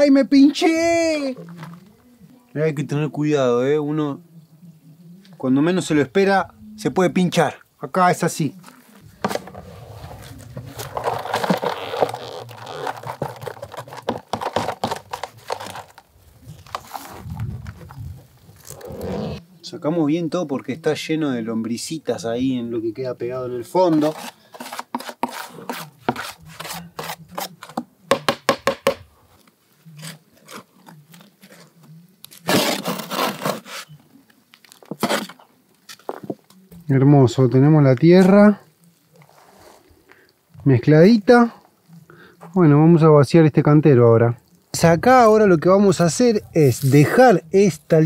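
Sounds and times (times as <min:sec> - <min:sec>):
trowel scraping through soil: 0:09.0 - 0:19.4, 0:23.8 - 0:27.8, 0:29.9 - 0:34.0, 0:34.9 - 0:36.0.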